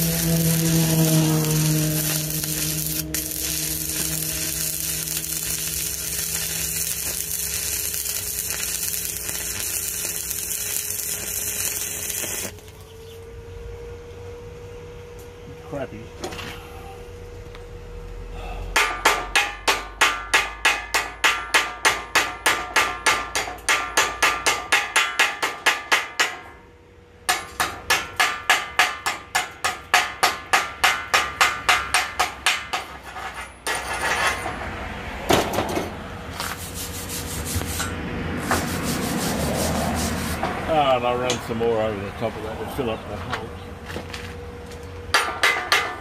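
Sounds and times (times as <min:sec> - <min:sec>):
wire brush scrubbing: 0:00.0 - 0:12.6, 0:36.4 - 0:40.4.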